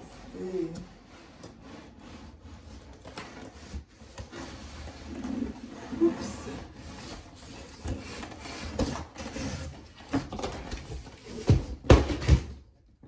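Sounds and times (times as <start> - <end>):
cardboard scraping and rubbing: 0.0 - 12.5.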